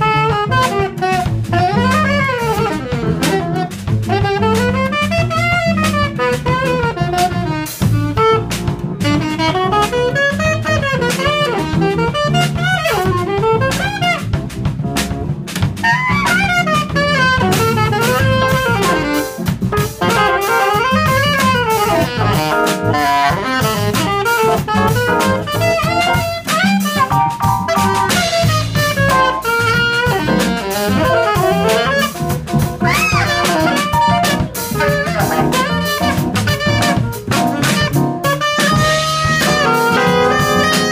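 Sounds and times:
drum kit: 0.0s - 40.9s
jazz saxophone solo: 0.0s - 40.9s
low bass notes: 0.0s - 40.9s.

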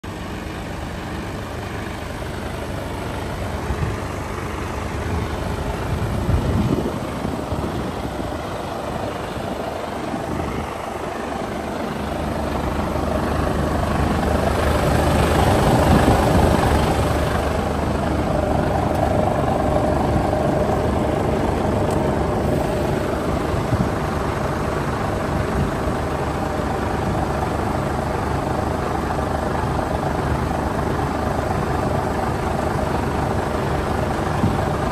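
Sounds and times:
diesel engine idling: 0.0s - 34.9s.

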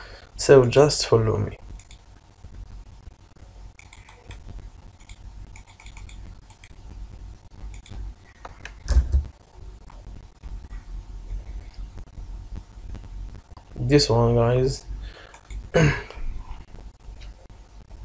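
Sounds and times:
keyboard and mouse clicks: 1.8s - 2.0s, 3.8s - 6.8s, 7.7s - 9.3s, 15.2s - 15.7s.

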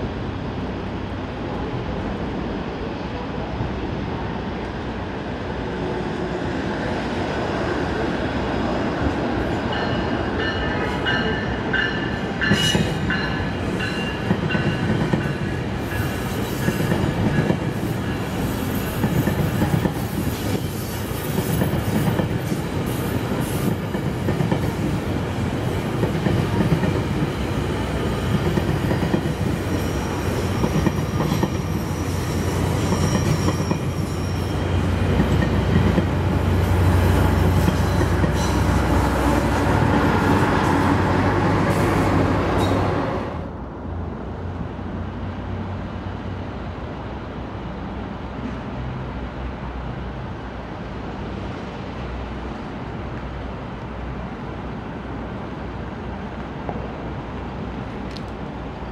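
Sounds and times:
train wheels rumbling: 4.0s - 43.6s
clickety-clack over rail joints: 9.0s - 33.9s, 34.8s - 43.0s.

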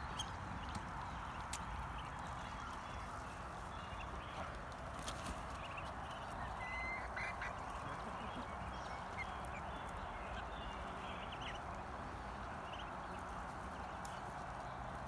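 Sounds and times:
ducklings peeping: 0.0s - 15.0s.

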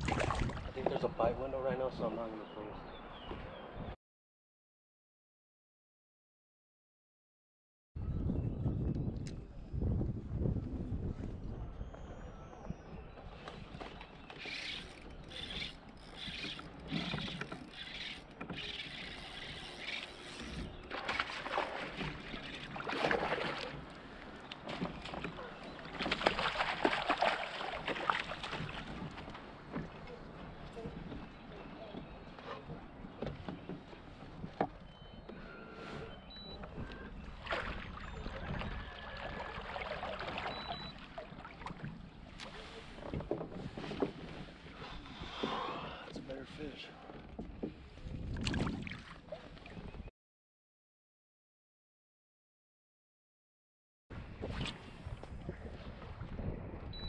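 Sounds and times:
water lapping against kayak hull: 0.0s - 2.3s, 11.6s - 50.1s, 54.2s - 57.0s
fishing reel cranking: 14.4s - 20.7s.

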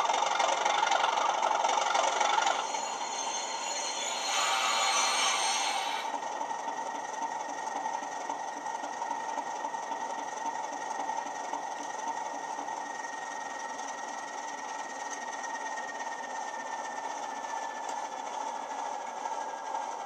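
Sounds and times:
thin high whistle: 2.0s - 6.2s
diesel engine idling from speaker: 6.3s - 20.0s.

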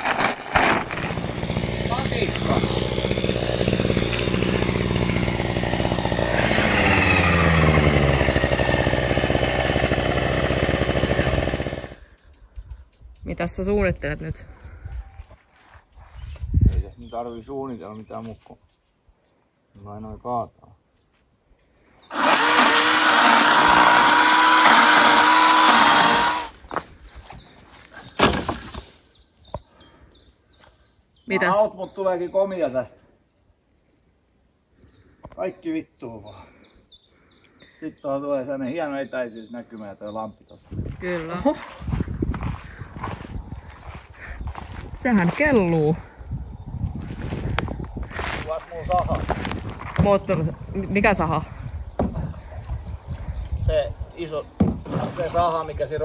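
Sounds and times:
string trimmer cutting grass: 0.0s - 12.1s, 22.1s - 26.6s, 41.6s - 45.3s
short thump: 54.6s - 55.1s.

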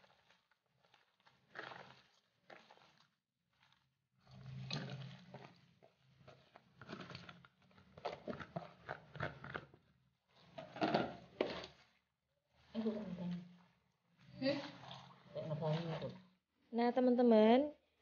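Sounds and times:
wet coconut squished by hand: 0.0s - 9.6s.

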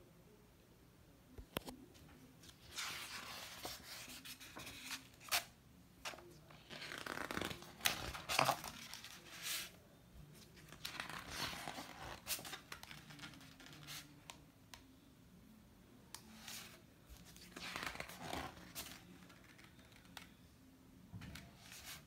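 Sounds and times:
book pages turning: 2.4s - 14.4s, 16.2s - 20.4s, 21.3s - 22.0s.

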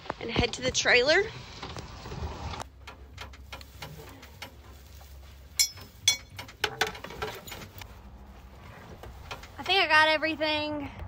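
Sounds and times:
gear knocking and rustling: 0.0s - 10.3s
sharp metal clanks: 5.5s - 7.8s.

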